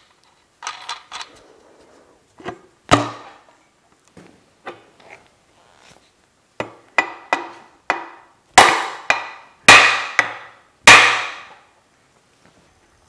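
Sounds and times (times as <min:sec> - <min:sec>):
hammer striking steel: 0:07.0 - 0:11.6.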